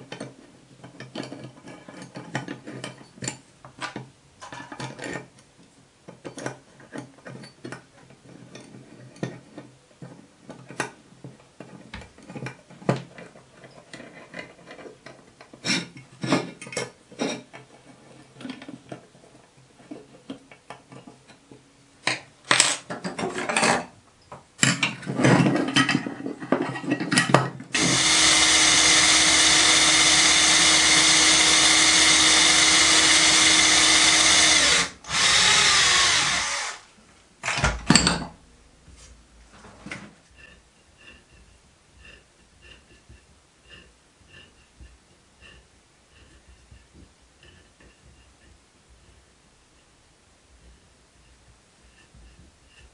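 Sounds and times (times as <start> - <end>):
cordless drill drilling: 27.8 - 36.9.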